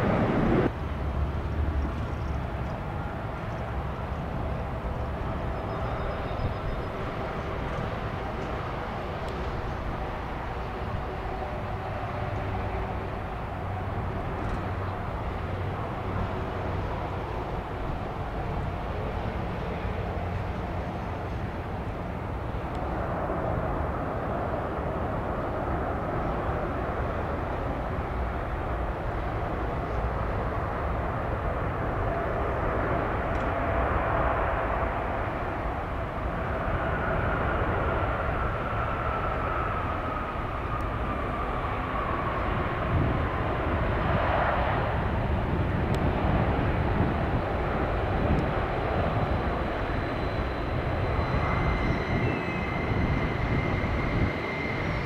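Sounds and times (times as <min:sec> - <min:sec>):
jet engines running: 0:00.0 - 0:55.0
higher whine: 0:45.8 - 0:55.0.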